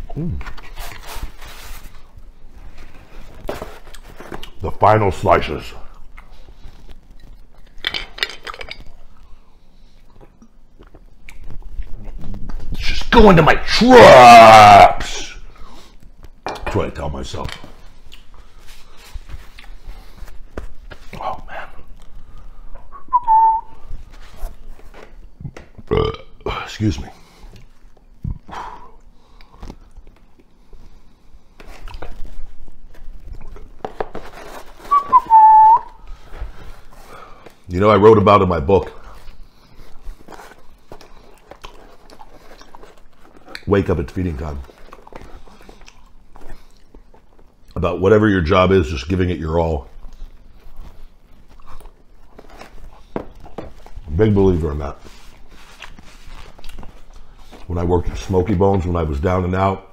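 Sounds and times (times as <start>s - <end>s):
eating pizza crust crackles: 0.1s - 59.4s
high squeal: 34.9s - 35.9s.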